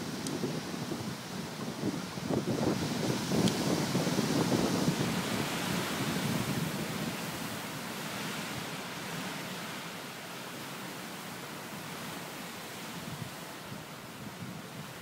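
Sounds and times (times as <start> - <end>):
wind buffeting microphone: 0.0 - 8.6.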